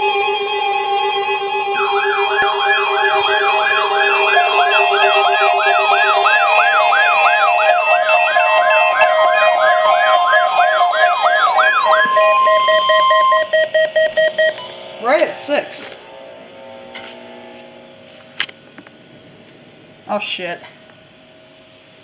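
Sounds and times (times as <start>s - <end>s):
pulsing beeps: 0.0s - 16.0s
fast whooping siren-like alarm: 0.0s - 16.8s
steady alarm tones: 0.0s - 22.0s.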